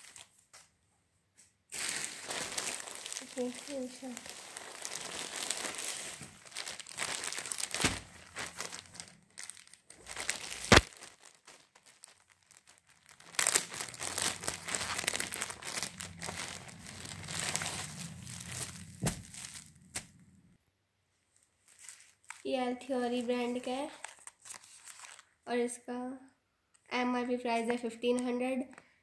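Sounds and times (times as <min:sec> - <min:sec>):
plastic bag crinkling: 0:01.7 - 0:20.2, 0:21.4 - 0:25.4.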